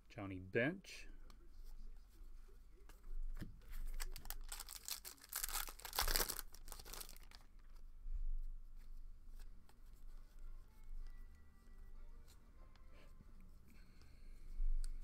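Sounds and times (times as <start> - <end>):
foil wrapper crinkling and tearing: 3.9 - 7.7.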